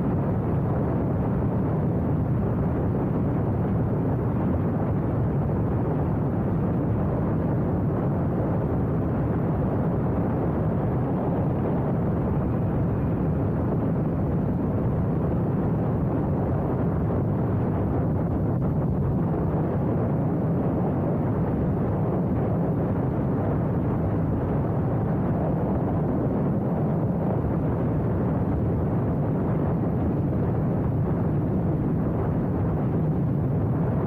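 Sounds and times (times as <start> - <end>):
wind rushing over microphone: 0.0 - 34.0.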